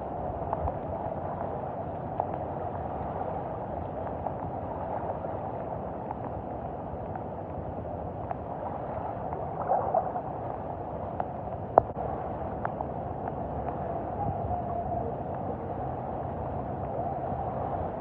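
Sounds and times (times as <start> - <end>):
faint ticks: 0.3 - 2.6, 3.7 - 8.5, 9.2 - 15.7.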